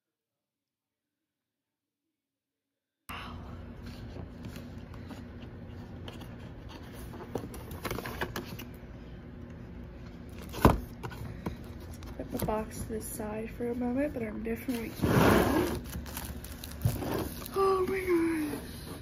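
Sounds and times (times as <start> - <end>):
cardboard packaging rustling: 14.5 - 18.9.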